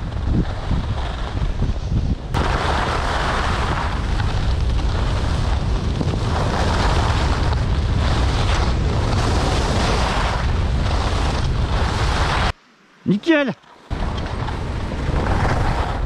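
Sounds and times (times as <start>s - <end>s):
skis sliding on packed snow: 0.0s - 12.5s, 13.1s - 16.0s
wind buffeting microphone: 0.0s - 12.6s.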